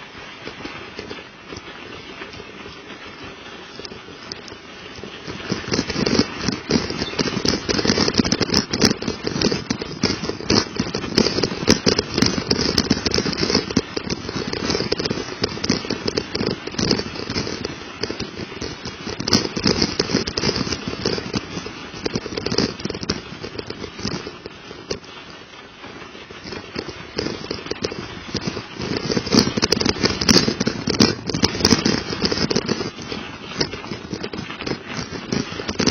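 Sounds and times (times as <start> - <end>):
bike tyres crunching on icy snow: 0.0 - 35.9.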